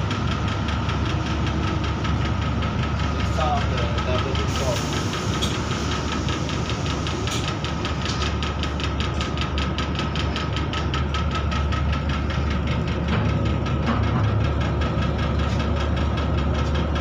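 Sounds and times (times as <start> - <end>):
train machinery low hum: 0.0 - 17.0.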